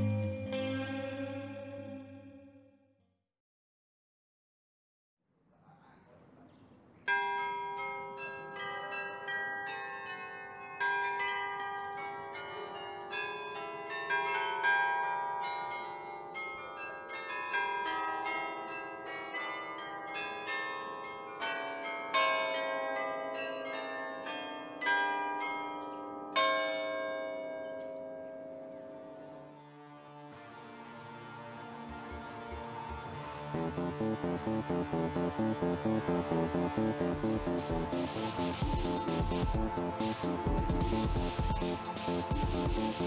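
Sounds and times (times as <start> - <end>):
bells ringing: 7.1 - 29.4, 33.6 - 43.0.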